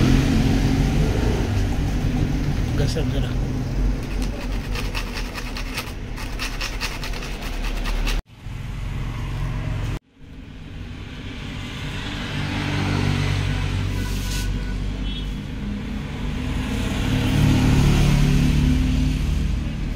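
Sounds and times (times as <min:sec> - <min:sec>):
vehicle engine droning: 0:00.0 - 0:04.9
traffic noise: 0:00.0 - 0:19.9
rhythmic scraping: 0:01.6 - 0:08.2.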